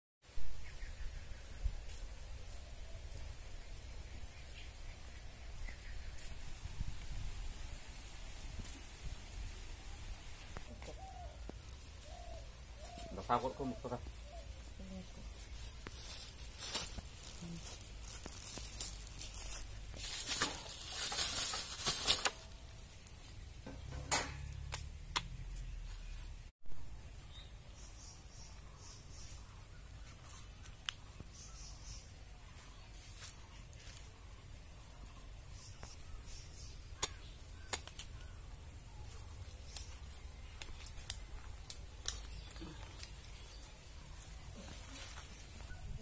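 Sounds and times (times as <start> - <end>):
plastic bag crinkling: 15.4 - 22.6.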